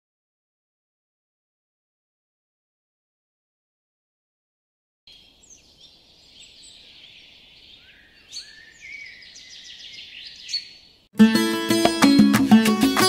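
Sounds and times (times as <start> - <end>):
birds chirping: 5.1 - 11.1
acoustic guitar playing: 11.2 - 13.0.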